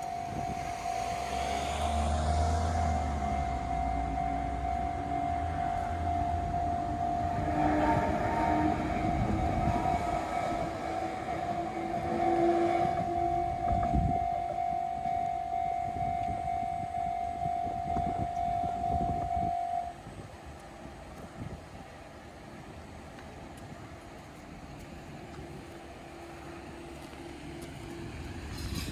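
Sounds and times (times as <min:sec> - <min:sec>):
level crossing warning bell: 0:00.0 - 0:20.2
electric train rumbling and clattering: 0:00.0 - 0:28.9.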